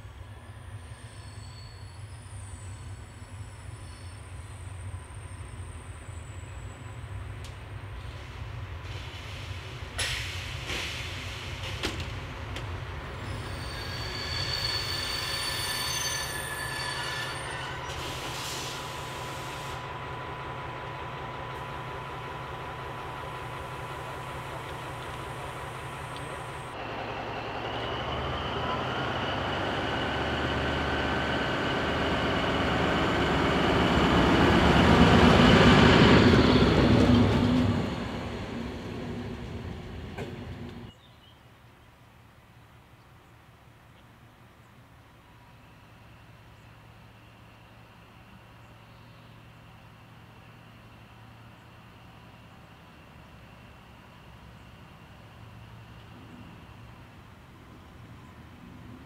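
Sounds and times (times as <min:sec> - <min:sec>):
diesel locomotive engine rumble: 0:00.0 - 0:41.0, 0:42.6 - 0:59.0
high wheel squeal on rails: 0:00.2 - 0:06.9, 0:13.2 - 0:19.9.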